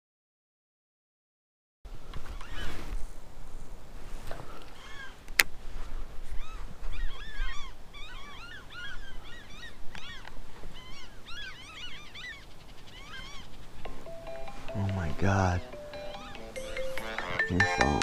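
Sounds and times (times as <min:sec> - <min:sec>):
geese honking: 0:13.0 - 0:18.0.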